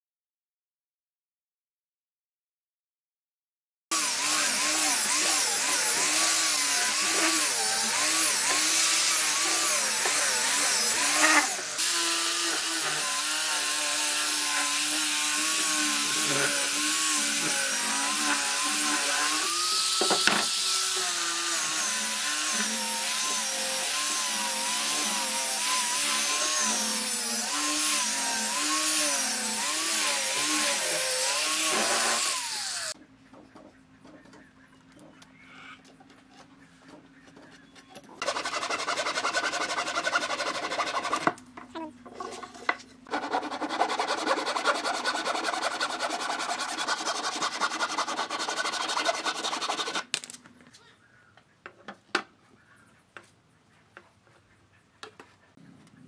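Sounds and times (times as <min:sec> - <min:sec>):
angle grinder motor whine: 0:04.0 - 0:33.0.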